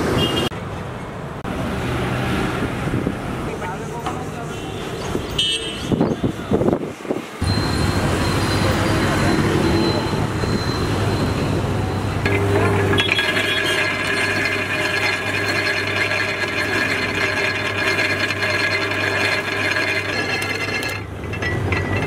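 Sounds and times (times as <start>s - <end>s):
street traffic: 0.0s - 22.0s
juice extractor crushing cane: 12.3s - 22.0s.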